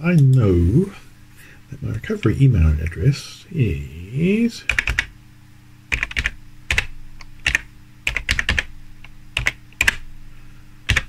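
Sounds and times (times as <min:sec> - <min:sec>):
computer keyboard keys clicking: 0:04.7 - 0:05.1, 0:05.9 - 0:08.7, 0:09.4 - 0:10.0.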